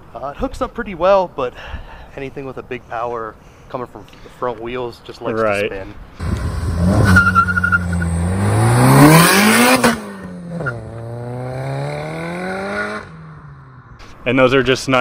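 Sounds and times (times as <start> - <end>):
car engine accelerating hard: 6.2 - 13.4
tyre squeal: 6.8 - 8.2.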